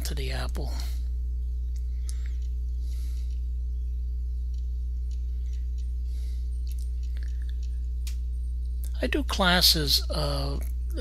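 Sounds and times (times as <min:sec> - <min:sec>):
low electrical hum: 0:00.0 - 0:11.0
faint clicks: 0:01.7 - 0:03.5, 0:04.4 - 0:09.0.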